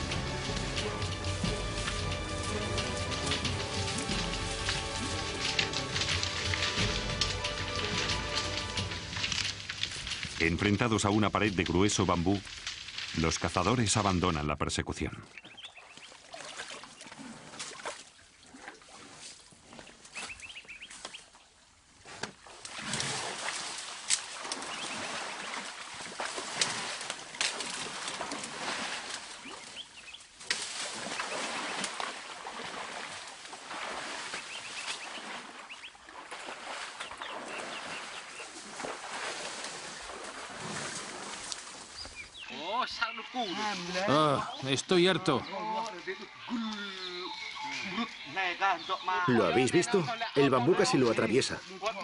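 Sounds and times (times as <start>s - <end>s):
sharp cracks of snapping stems: 0.0s - 13.9s, 22.2s - 35.4s, 38.6s - 42.2s
bamboo and undergrowth rustling: 0.0s - 14.5s, 15.2s - 52.0s.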